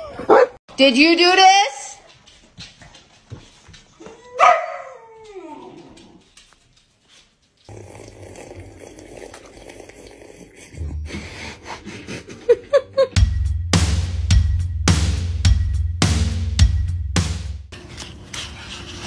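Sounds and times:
dog bark-howl: 4.3 - 5.2.

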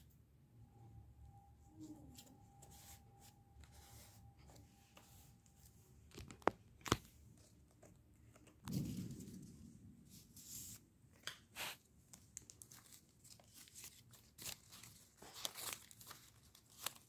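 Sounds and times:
paper rustling: 10.2 - 17.0.

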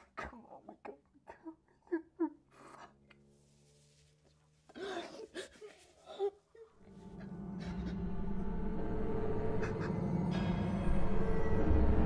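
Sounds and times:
low music drone: 6.8 - 12.0.

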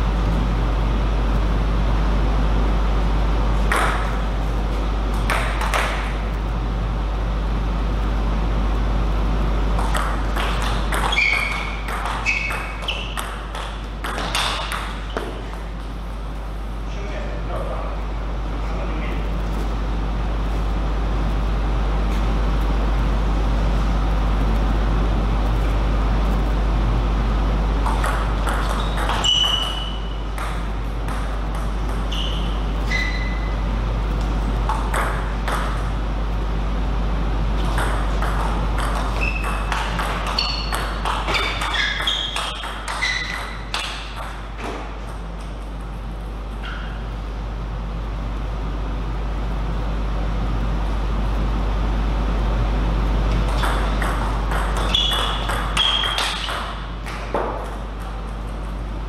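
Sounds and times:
steady low hum: 0.0 - 59.0
table tennis ball hits: 3.6 - 4.2, 5.2 - 6.1, 9.8 - 15.6, 27.8 - 32.6, 34.6 - 35.9, 37.6 - 45.2, 53.5 - 58.2.

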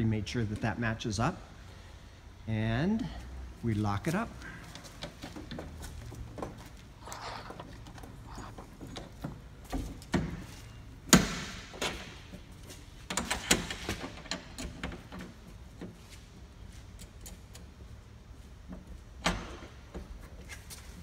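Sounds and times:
metal latch clanks and clicks: 13.1 - 15.3.

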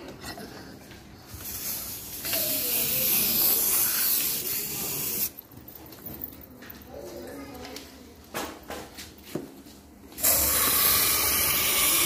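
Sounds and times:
aerosol spray can hissing: 1.4 - 5.3, 10.2 - 12.0.

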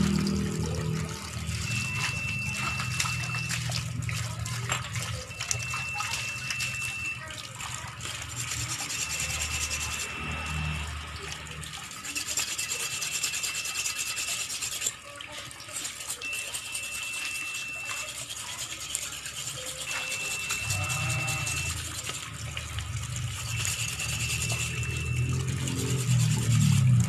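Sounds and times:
tap water pouring into basin: 0.0 - 27.0
knife scraping fish: 11.8 - 22.3, 23.4 - 27.0.

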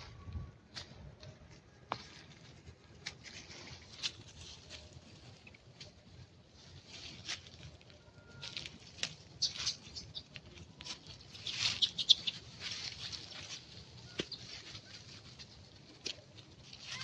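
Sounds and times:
rustling: 1.4 - 17.0.

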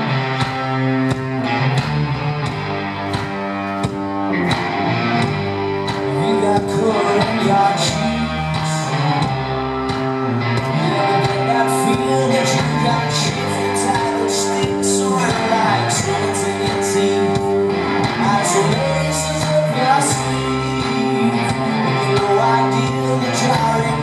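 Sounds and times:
rock band playing: 0.0 - 24.0
man singing: 5.9 - 9.4, 10.6 - 24.0.

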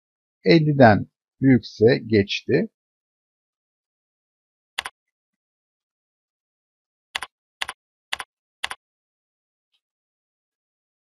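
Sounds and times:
keyboard keystrokes: 7.2 - 8.8.

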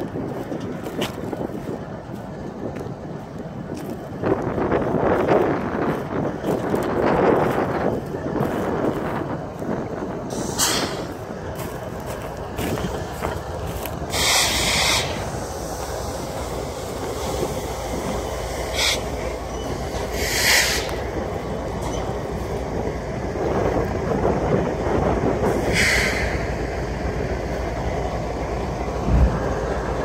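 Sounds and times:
diesel locomotive engines rumbling: 0.0 - 30.0
train wheels on rails: 0.0 - 30.0
high hissing squeals: 14.1 - 17.0, 18.5 - 21.0.

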